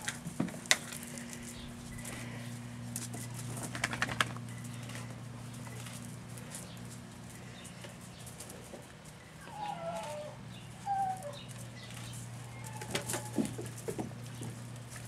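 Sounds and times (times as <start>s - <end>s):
steady low hum: 0.0s - 15.0s
puppies squeaking: 9.2s - 13.6s.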